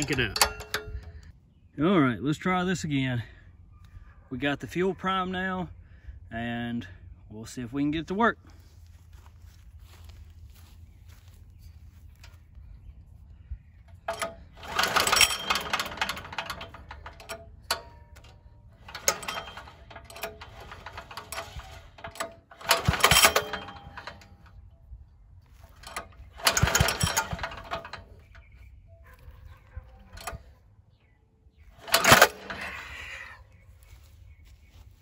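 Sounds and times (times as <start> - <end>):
diesel engine rattling clatter: 0.0 - 1.3, 13.9 - 24.8, 25.4 - 30.5, 31.7 - 34.5
recoil starter pulls: 0.0 - 1.3, 13.9 - 24.8, 25.4 - 30.6, 31.7 - 33.6.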